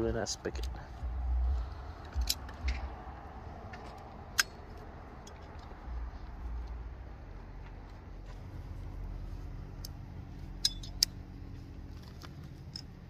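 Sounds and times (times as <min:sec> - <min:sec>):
low handling rumble: 0:00.0 - 0:13.0
metallic clicks and taps: 0:02.0 - 0:02.9, 0:10.6 - 0:11.2.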